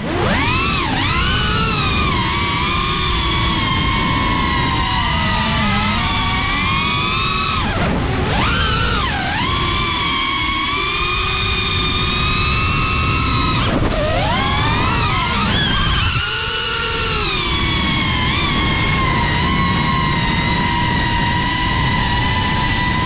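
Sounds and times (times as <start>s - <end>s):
drone propellers whining: 0.0s - 23.0s
wind on microphone: 0.0s - 23.0s.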